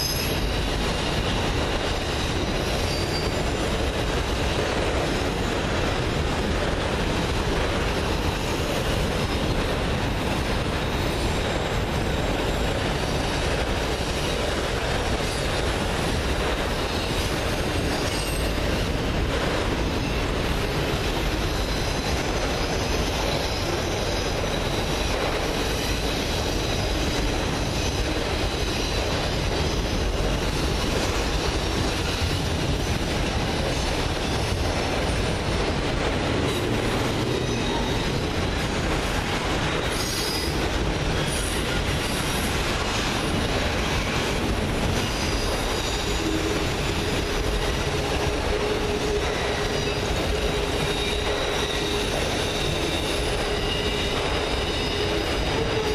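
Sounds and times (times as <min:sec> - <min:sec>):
steel wheels rumbling on rail: 0:00.0 - 0:55.9
high-pitched wheel squeal: 0:02.7 - 0:03.5.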